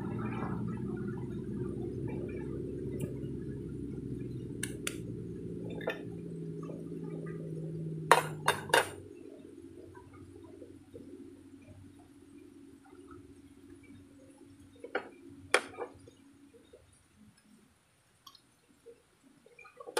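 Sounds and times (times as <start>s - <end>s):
low rumble: 0.0s - 14.1s.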